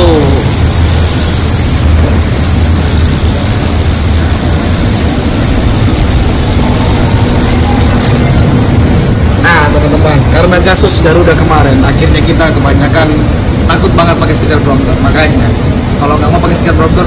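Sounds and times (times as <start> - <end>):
low hum: 0.0 - 9.4
loud rushing noise: 0.0 - 10.4.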